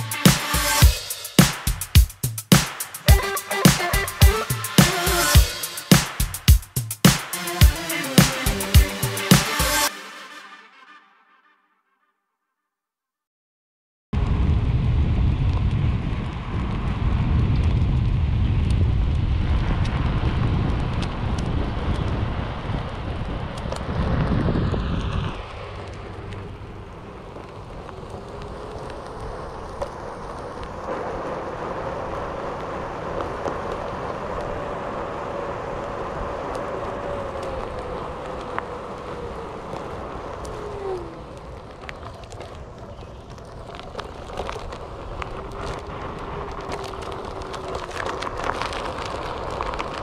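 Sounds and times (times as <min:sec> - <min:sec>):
wind rumble on microphone: 0:14.2 - 0:50.0.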